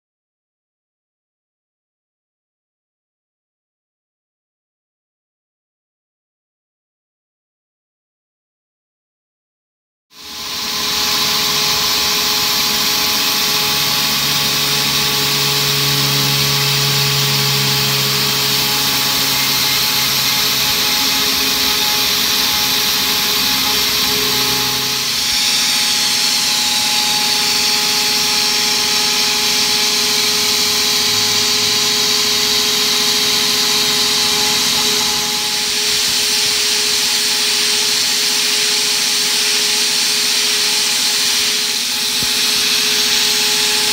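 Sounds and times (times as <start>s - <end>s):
router spindle whine: 10.2s - 43.9s
metal cutting hiss: 18.6s - 28.4s.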